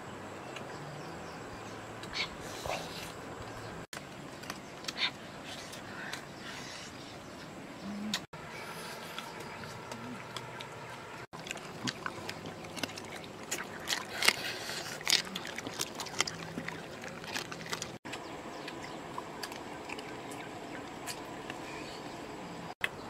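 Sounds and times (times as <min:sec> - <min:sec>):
dogs chewing and crunching: 0:09.0 - 0:22.1.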